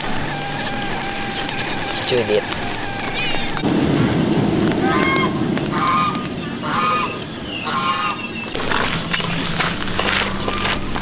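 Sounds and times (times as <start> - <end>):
fowl honking calls: 0.0 - 3.6, 4.8 - 8.8.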